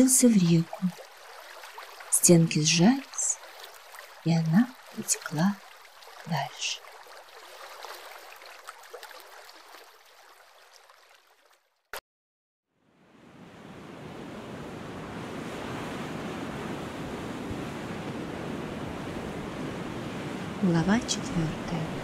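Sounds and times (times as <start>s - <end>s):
rushing water with low rumble: 0.0s - 11.6s, 12.8s - 22.0s
trickling gurgling water: 0.0s - 11.9s.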